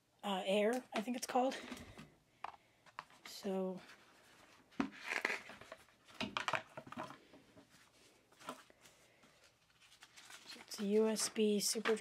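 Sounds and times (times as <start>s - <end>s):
paper rustling: 2.8s - 12.0s.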